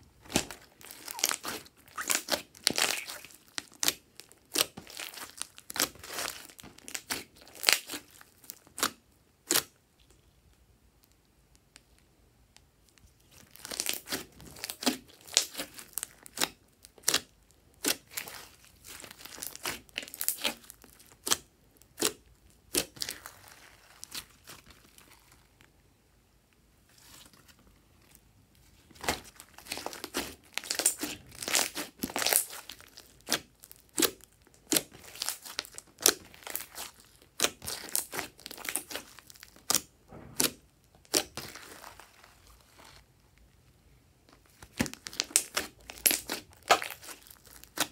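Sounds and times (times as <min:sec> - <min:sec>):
slime squished by hand: 0:00.2 - 0:09.7, 0:13.2 - 0:25.6, 0:28.8 - 0:43.1, 0:44.5 - 0:47.9.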